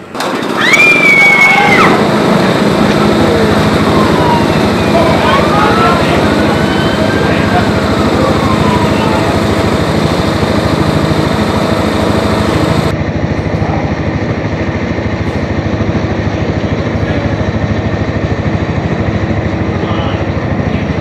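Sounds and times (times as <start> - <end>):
riding lawn mower engine running: 0.0 - 21.0.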